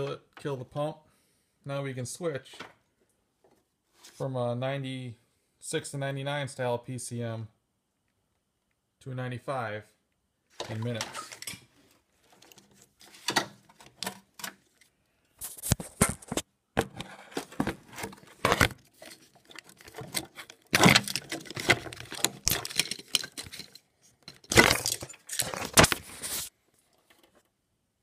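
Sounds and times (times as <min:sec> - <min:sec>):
wire rustling: 0:10.6 - 0:16.4, 0:17.0 - 0:27.5
plastic connectors clicking and rattling: 0:17.0 - 0:26.0.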